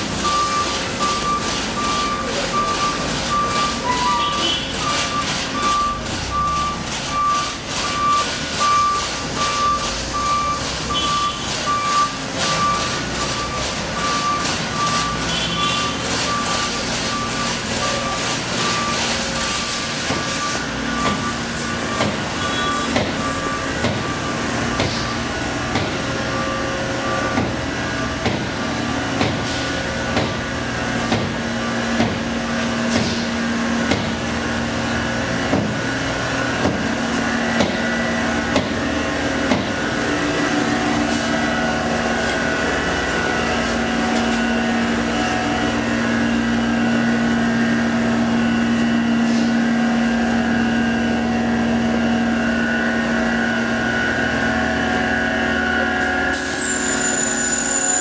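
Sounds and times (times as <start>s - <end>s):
machine hum with high whine: 0.0s - 58.0s
sharp machine knocks: 21.9s - 22.3s.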